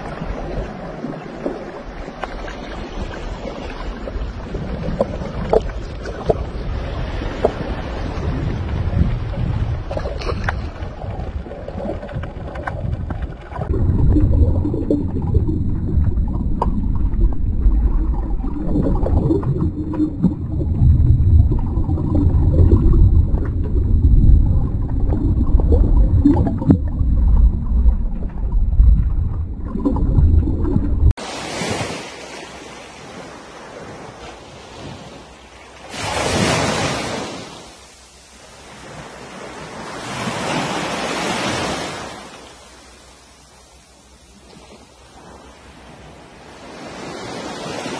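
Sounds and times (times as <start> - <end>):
wind noise: 0.0 - 32.0
low rumbling water: 0.0 - 47.9
small waves washing onto shore: 0.0 - 47.9.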